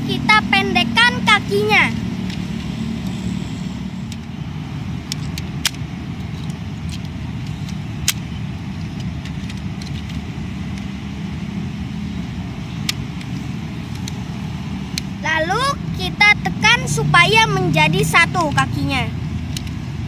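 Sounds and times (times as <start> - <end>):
plastic toy parts clicking: 2.2 - 3.1, 4.1 - 4.4, 5.0 - 10.9, 12.7 - 14.3, 19.4 - 19.9.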